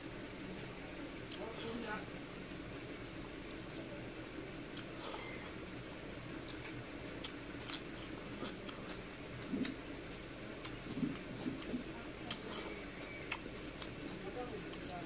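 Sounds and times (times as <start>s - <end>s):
chewing clicks and smacks: 6.4s - 15.0s.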